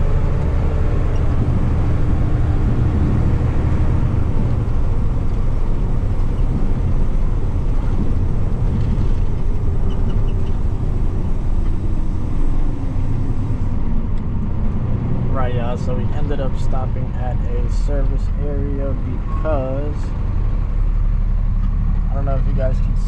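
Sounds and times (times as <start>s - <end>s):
road rumble: 0.0s - 23.0s
truck engine: 0.0s - 23.0s.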